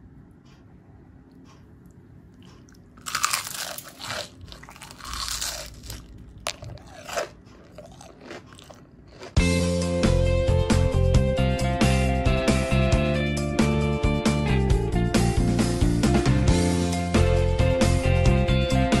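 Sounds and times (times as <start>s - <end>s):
crunchy chewing: 1.5s - 9.4s.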